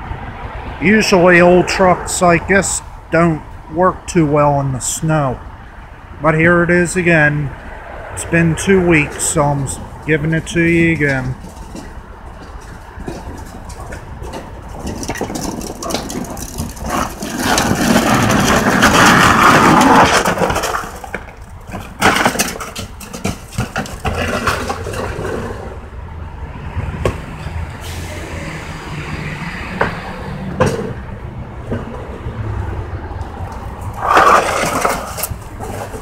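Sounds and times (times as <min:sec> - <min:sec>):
garbage truck engine and packer: 0:06.9 - 0:36.0
loud churning crushing noise: 0:08.2 - 0:26.0, 0:26.8 - 0:36.0
trash knocking and clattering: 0:09.7 - 0:25.8, 0:29.8 - 0:32.7, 0:33.6 - 0:36.0.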